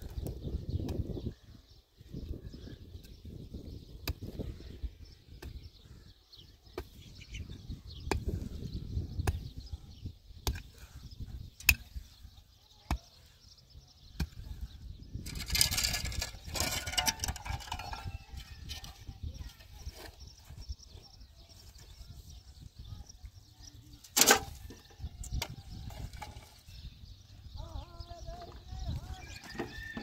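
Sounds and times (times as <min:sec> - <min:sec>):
shovel scraping dirt and gravel: 0:15.2 - 0:20.2, 0:24.0 - 0:24.7.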